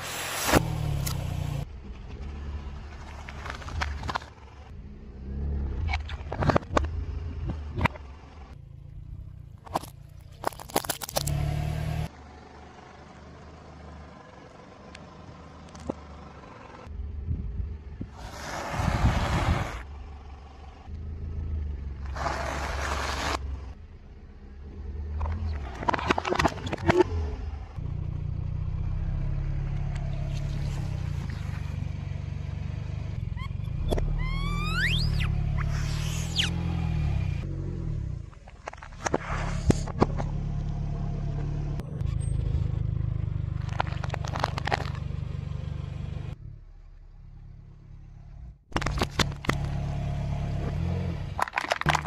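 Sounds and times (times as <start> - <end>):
car engine running: 0.7 - 52.0
plastic pouches cracking and popping: 9.7 - 11.4, 43.6 - 45.0, 51.4 - 52.0.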